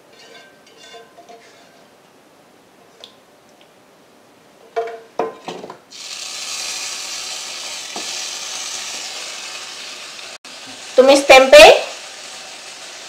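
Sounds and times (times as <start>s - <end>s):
pan sizzling: 5.9s - 13.0s.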